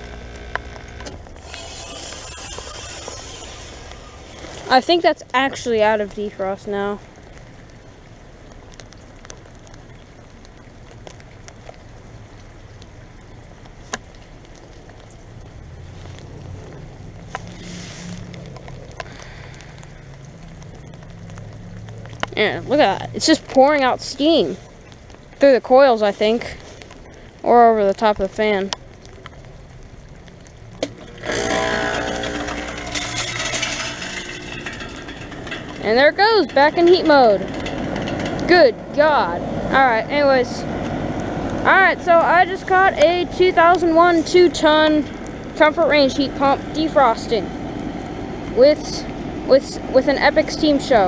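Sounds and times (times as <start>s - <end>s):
heat pump rush and hum: 0.0s - 5.4s, 30.8s - 51.0s
faint drip-like ticks: 2.5s - 31.2s.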